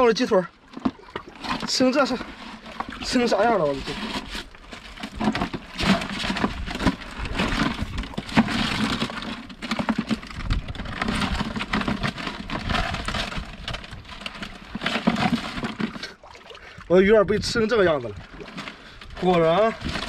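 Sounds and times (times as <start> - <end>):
wet net crackling rustles: 0.6 - 16.8, 18.2 - 20.0.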